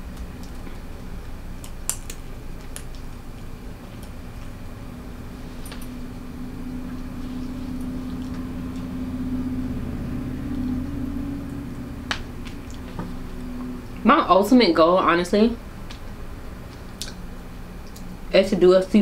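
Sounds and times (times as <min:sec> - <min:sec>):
low mechanical hum: 0:00.0 - 0:19.0
crab shells cracking clicks: 0:01.6 - 0:04.5.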